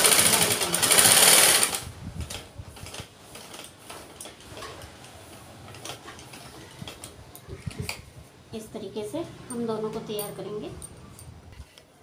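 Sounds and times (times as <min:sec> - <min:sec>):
sewing machine stitching: 0:00.0 - 0:01.9.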